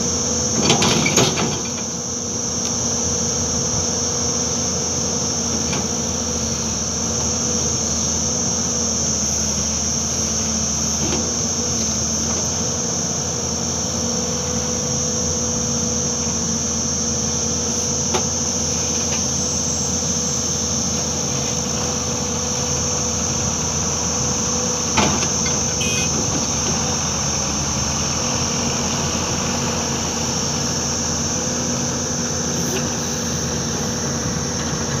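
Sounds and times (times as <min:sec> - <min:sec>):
excavator diesel engine running: 0:00.0 - 0:35.0
high-pitched insect drone: 0:25.4 - 0:26.6.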